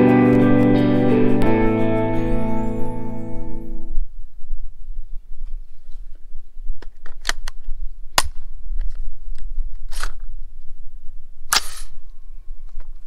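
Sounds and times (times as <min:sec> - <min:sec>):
rifle metallic clicks and snaps: 0:06.8 - 0:10.2, 0:11.5 - 0:11.9.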